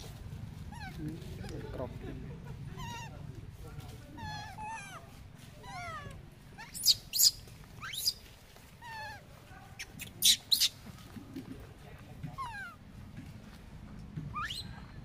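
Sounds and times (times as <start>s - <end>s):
baby monkey crying: 2.8s - 3.2s, 4.2s - 8.2s, 8.8s - 9.2s, 9.8s - 10.7s, 12.3s - 12.8s, 14.4s - 14.7s.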